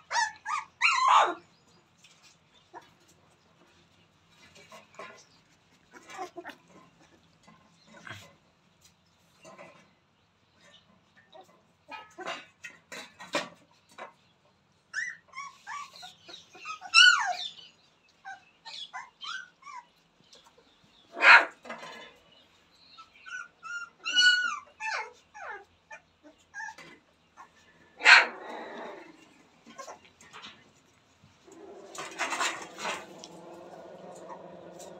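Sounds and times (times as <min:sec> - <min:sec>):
puppies whining and yelping: 0:00.0 - 0:01.4, 0:14.9 - 0:20.6, 0:23.0 - 0:30.6
sharp puppy yaps: 0:00.1 - 0:01.4, 0:15.0 - 0:17.5.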